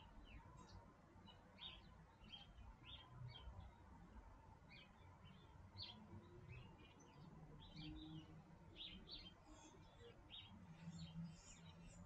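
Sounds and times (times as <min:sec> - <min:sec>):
faint bird chirps: 0:04.7 - 0:12.0.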